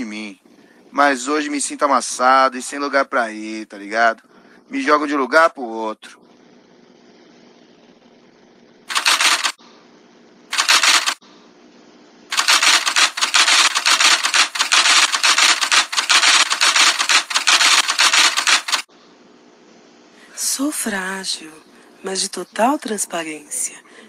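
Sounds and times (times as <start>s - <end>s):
faint steady hum: 0.0s - 10.6s, 11.2s - 12.4s, 18.9s - 24.0s
typewriter keystrokes: 8.9s - 9.6s, 10.6s - 11.2s, 12.3s - 18.9s.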